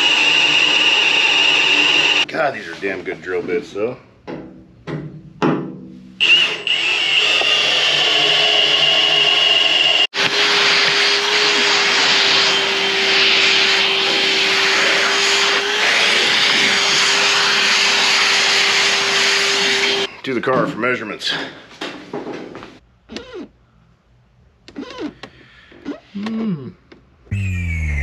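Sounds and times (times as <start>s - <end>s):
shop vacuum sucking metal chips: 0.0s - 2.3s, 6.2s - 20.1s.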